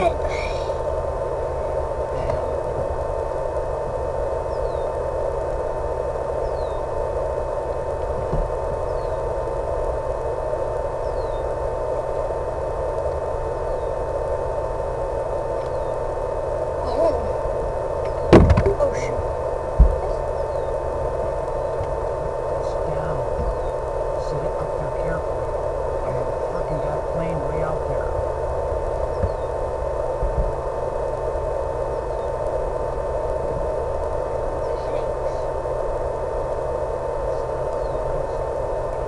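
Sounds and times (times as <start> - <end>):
constant mid-pitched tone: 0.0 - 39.0
low hum: 0.0 - 39.0
steady hissing noise: 0.0 - 39.0
loud knock: 18.3 - 18.8.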